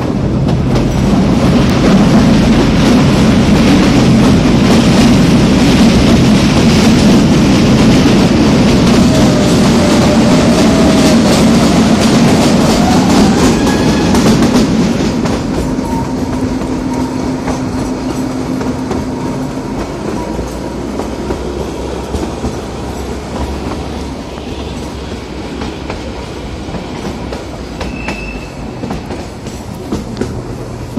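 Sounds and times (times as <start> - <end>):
train wheels rumbling on rail: 0.0 - 30.9
short high squeal: 27.8 - 28.6.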